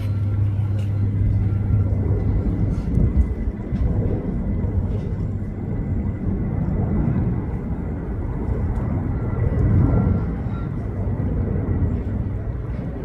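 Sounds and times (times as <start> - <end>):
distant jet airliner engines rumbling: 0.0 - 13.0.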